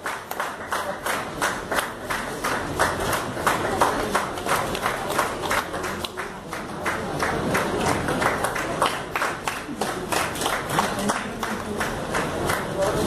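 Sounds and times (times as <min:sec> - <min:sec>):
audience clapping: 0:00.0 - 0:13.0.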